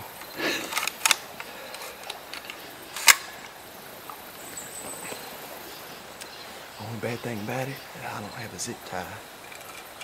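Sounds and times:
rifle handling clicks: 0:00.2 - 0:03.4
sharp rifle click: 0:02.0 - 0:03.4.

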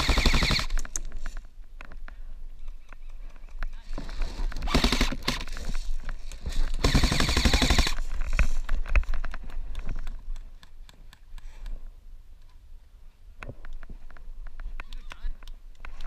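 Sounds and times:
airsoft rifle full-auto bursts: 0:00.0 - 0:00.8, 0:04.5 - 0:05.6, 0:06.8 - 0:08.0.

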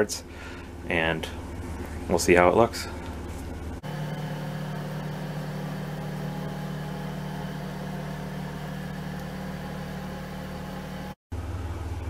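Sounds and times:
machine humming: 0:03.8 - 0:11.2.

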